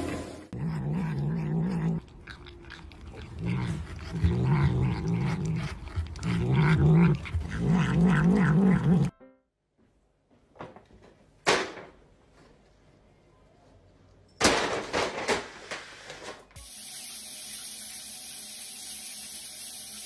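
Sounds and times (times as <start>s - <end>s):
cat growling: 0.0s - 9.1s
cat licking and chewing: 0.6s - 8.8s.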